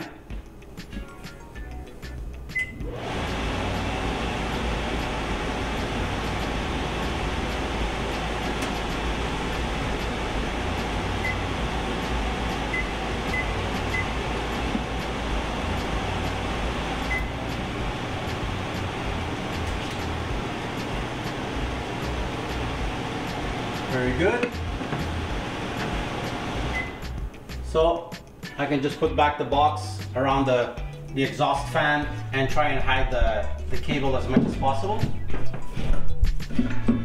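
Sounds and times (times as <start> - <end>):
microwave vent fan running: 0.1 - 27.8.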